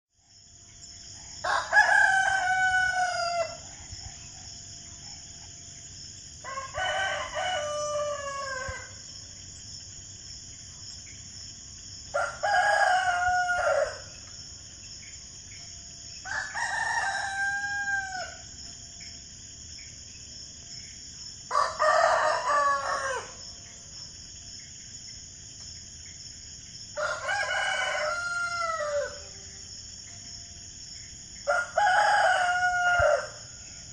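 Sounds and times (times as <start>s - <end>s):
rooster crowing: 1.4s - 3.8s, 6.4s - 9.1s, 12.1s - 14.2s, 16.2s - 18.5s, 21.5s - 23.6s, 27.0s - 29.5s, 31.5s - 33.5s.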